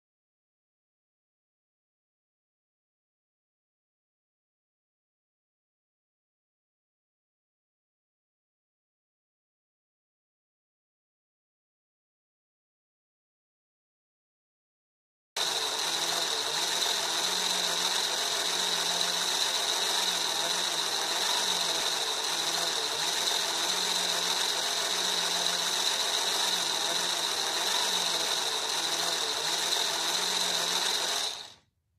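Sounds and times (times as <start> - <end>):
toy gear mechanism whirring: 15.4 - 31.6.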